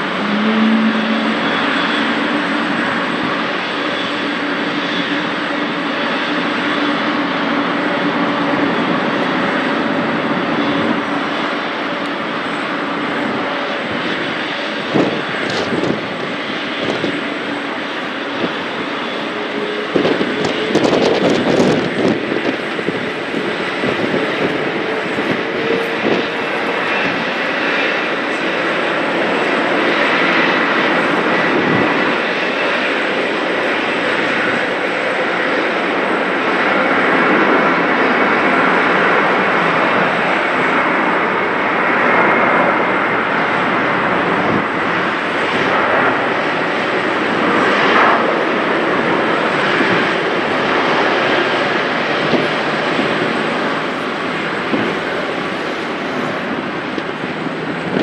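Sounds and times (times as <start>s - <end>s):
jet engines at taxi power: 0.0s - 58.0s.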